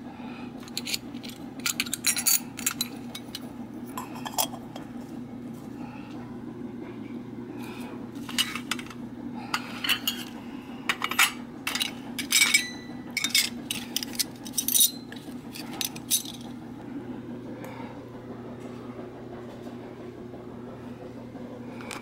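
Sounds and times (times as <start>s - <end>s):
tin toy dishes clinking: 0.7s - 3.4s, 9.6s - 16.4s.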